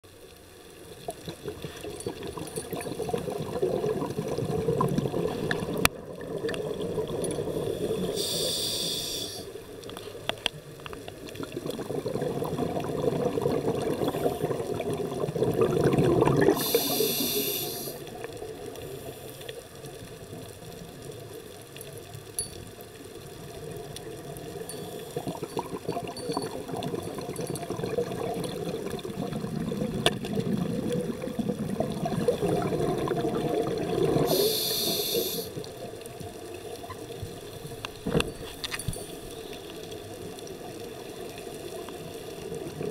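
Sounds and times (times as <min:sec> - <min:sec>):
exhaled bubbles rumbling underwater: 0:00.8 - 0:08.4, 0:10.8 - 0:17.3, 0:23.2 - 0:34.6, 0:39.4 - 0:42.9
regulator inhalation hiss: 0:07.6 - 0:09.6, 0:16.5 - 0:18.1, 0:34.3 - 0:35.6.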